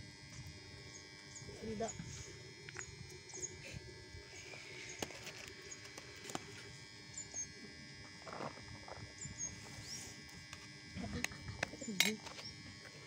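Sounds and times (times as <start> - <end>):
small birds chirping: 0.9 - 3.6.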